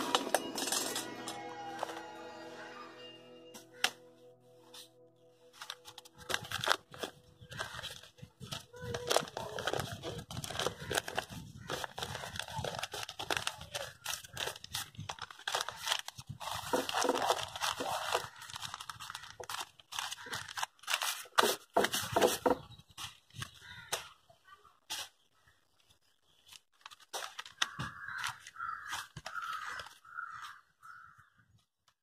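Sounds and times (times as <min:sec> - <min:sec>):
newspaper crinkling and rustling: 0:04.7 - 0:23.9, 0:25.8 - 0:30.6.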